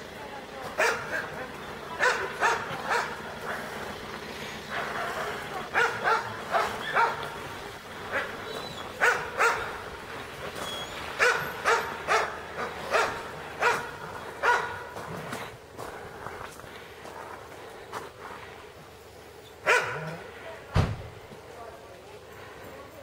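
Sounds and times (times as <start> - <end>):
dog barking: 0.8 - 1.4, 2.0 - 3.8, 4.7 - 7.4, 8.1 - 9.8, 11.2 - 15.0, 19.6 - 20.2.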